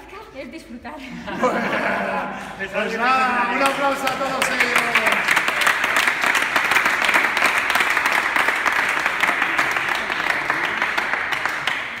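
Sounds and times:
people clapping: 0:03.1 - 0:12.0.

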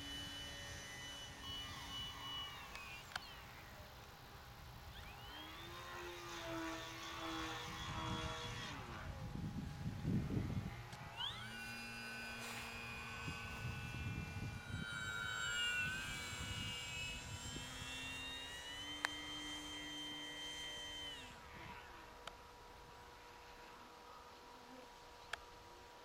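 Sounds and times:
model plane motor whining: 0:00.0 - 0:22.6
wind buffeting microphone: 0:07.5 - 0:11.2, 0:13.0 - 0:17.8.

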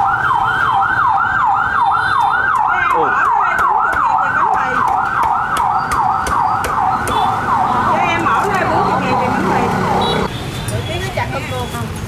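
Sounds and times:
electronic siren yelping: 0:00.0 - 0:10.3
cleaver chopping on wooden block: 0:02.5 - 0:07.3.

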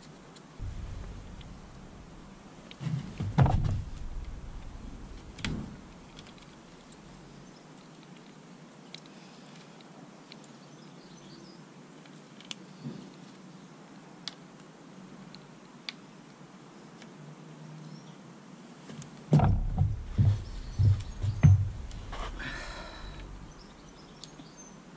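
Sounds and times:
hand tools knocking and clicking: 0:19.4 - 0:22.2.

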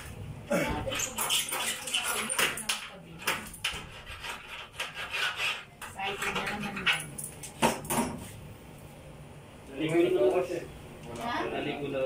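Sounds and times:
rubbing and scraping: 0:00.8 - 0:02.6, 0:03.2 - 0:07.0.

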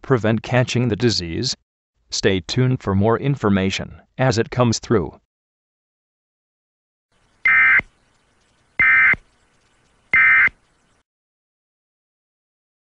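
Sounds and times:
digital data tone bursts: 0:07.4 - 0:07.9, 0:08.8 - 0:09.2, 0:10.1 - 0:10.6.

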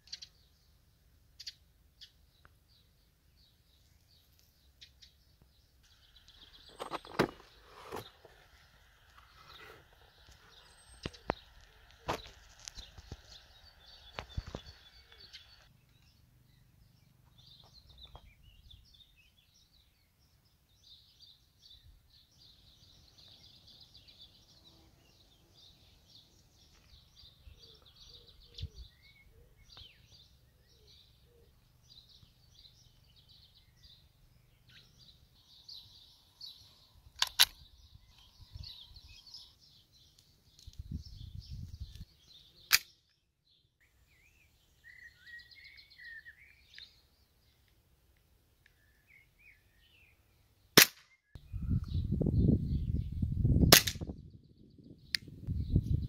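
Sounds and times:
small birds chirping: 0:00.0 - 0:56.0
pistol clicks: 0:42.7 - 0:43.1, 0:50.8 - 0:51.1, 0:53.7 - 0:54.0.

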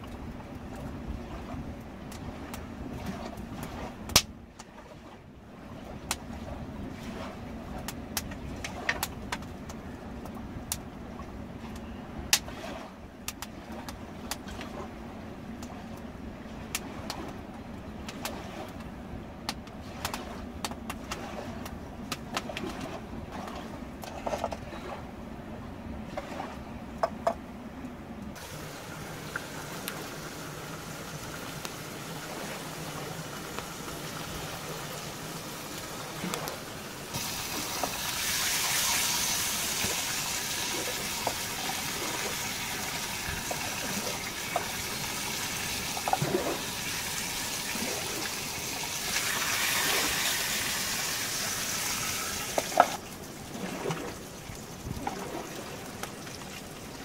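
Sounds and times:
bacon sizzling in a pan: 0:37.2 - 0:46.0.

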